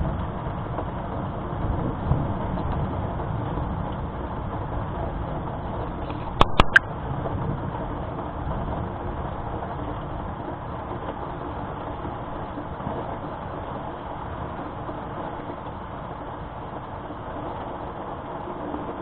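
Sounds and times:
storm rumble and hiss: 0.0 - 19.0
sharp clicks: 6.4 - 6.8.

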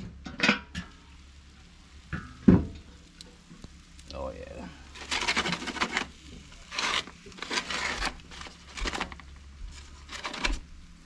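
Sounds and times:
foil pan crinkling and scraping: 4.9 - 11.0.

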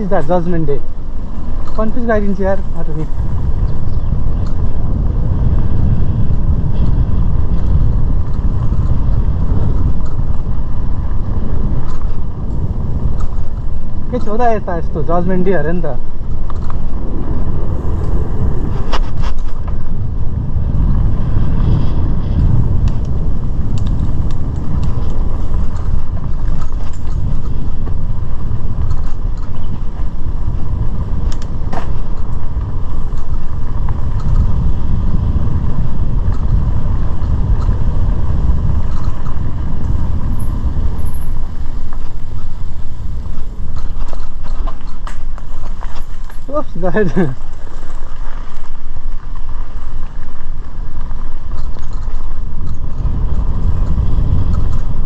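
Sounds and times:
bike clicks and rattles: 0.0 - 55.0
wind buffeting microphone: 0.0 - 55.0
tyres rolling over dirt: 22.0 - 55.0.

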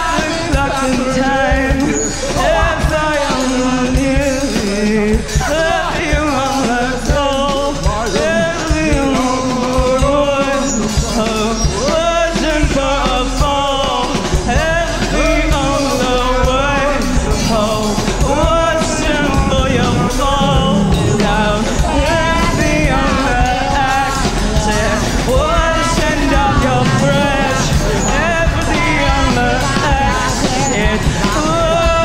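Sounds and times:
drums: 0.0 - 32.0
person singing long gliding notes: 0.0 - 32.0
electronic music: 13.8 - 32.0.

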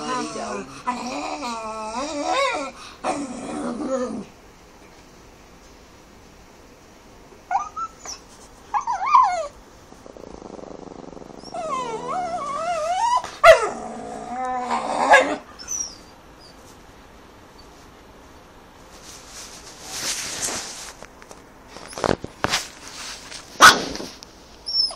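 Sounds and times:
dog yowling: 0.0 - 4.3, 7.5 - 9.6, 11.2 - 16.1
dog growling: 0.0 - 4.4, 9.3 - 15.5.

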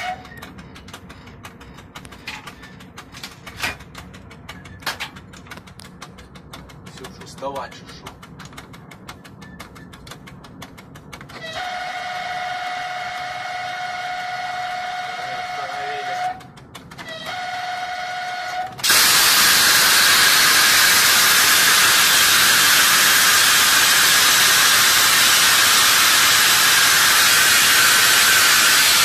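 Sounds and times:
train horn blast: 0.0 - 0.3, 11.4 - 29.0
loud steady hiss: 18.8 - 29.0.

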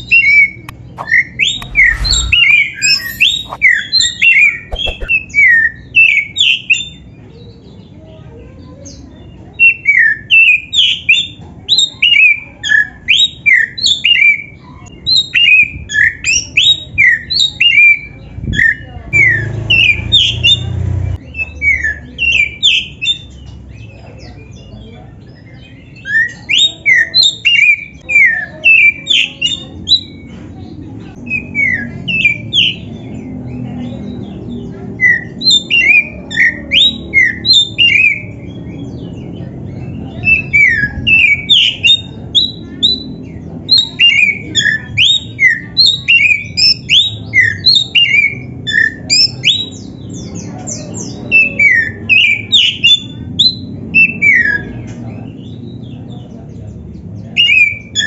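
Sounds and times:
bird singing chirps and whistles: 0.0 - 7.0.

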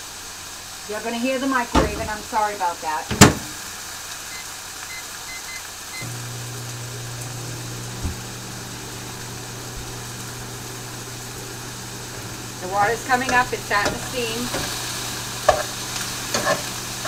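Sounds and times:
microwave keypad beeps: 4.3 - 6.1
microwave oven humming: 6.0 - 17.0.

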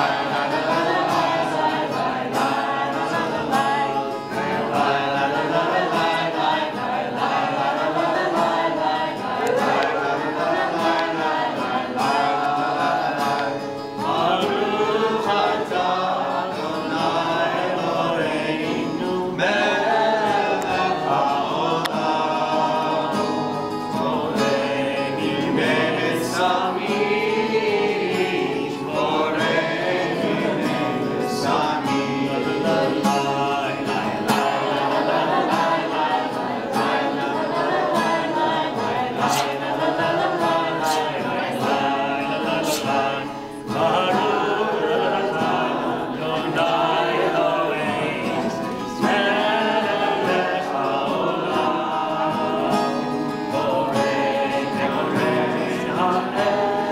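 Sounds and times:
group of people singing: 0.0 - 56.9.

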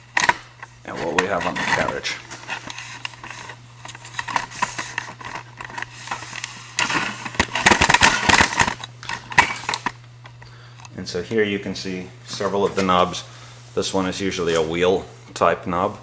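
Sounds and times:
steady low hum: 0.0 - 16.0
camera handling clicks and rustling: 2.5 - 10.9.

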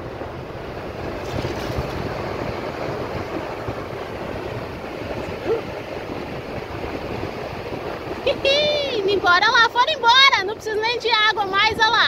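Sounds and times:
surf washing on beach: 0.0 - 12.0
wind on microphone: 0.0 - 12.0
water poured onto wet sand: 1.2 - 2.2.

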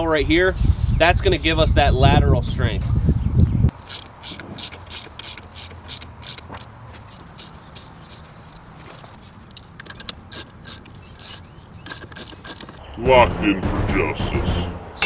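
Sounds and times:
socket ratchet clicking: 3.7 - 12.8.

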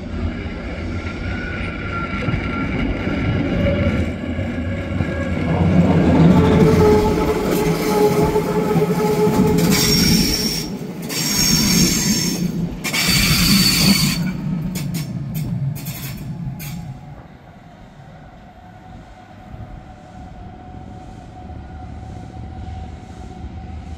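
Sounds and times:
electric train whine: 0.0 - 23.9
train brakes squealing: 1.0 - 4.1, 5.0 - 17.2
train clicks and squeaks: 1.0 - 17.3.

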